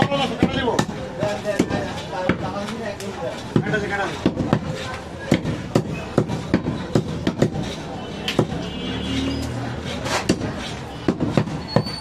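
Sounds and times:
cleaver chopping on wooden block: 0:01.6 - 0:02.7, 0:03.5 - 0:08.7, 0:10.1 - 0:11.6.

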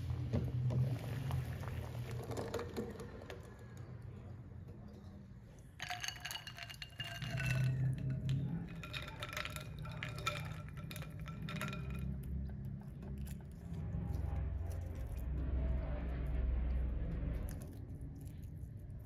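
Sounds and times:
eggs and ice clinking in glass bowl: 0:04.8 - 0:13.9.

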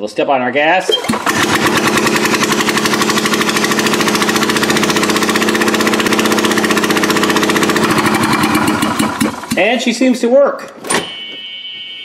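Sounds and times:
small engine running without muffler: 0:00.9 - 0:09.6.

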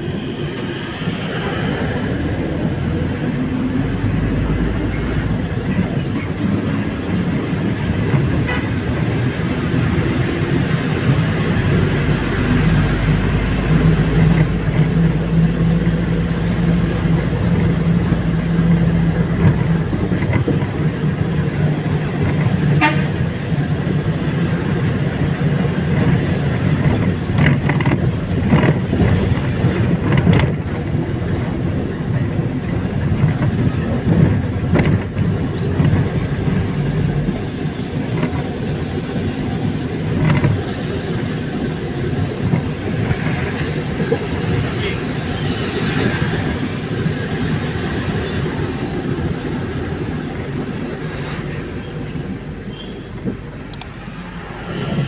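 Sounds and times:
road noise: 0:00.0 - 0:55.0
vehicle engine drone: 0:00.0 - 0:55.0
car horn toot: 0:22.8 - 0:23.2.

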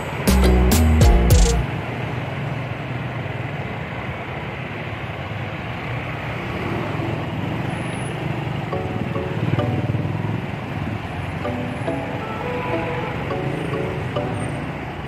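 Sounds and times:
background music: 0:00.0 - 0:01.7, 0:08.8 - 0:10.2, 0:11.4 - 0:14.9
motor scooter engine and road noise: 0:00.0 - 0:15.0.

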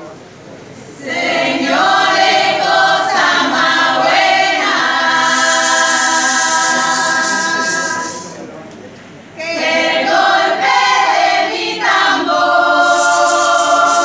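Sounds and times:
women's choir singing in harmony: 0:00.9 - 0:08.4, 0:09.4 - 0:14.0.

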